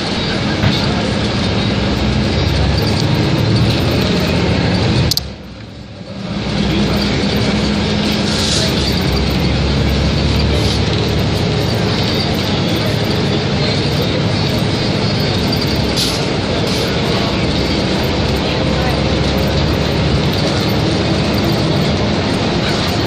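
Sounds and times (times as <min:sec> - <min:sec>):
bus engine and road noise: 0:00.0 - 0:23.0
sharp click: 0:05.0 - 0:05.4.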